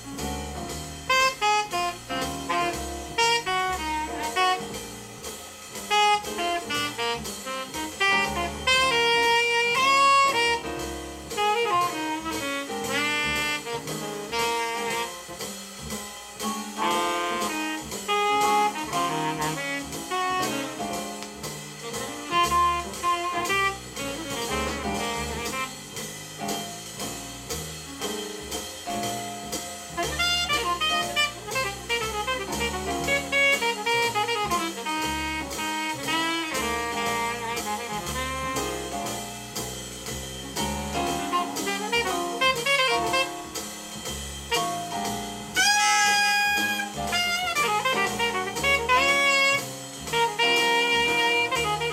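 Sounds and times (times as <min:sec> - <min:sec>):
drum kit: 0:00.0 - 0:51.9
alto saxophone solo: 0:01.1 - 0:05.2, 0:05.9 - 0:15.4, 0:16.8 - 0:26.2, 0:29.9 - 0:39.2, 0:40.9 - 0:43.7, 0:44.5 - 0:51.9.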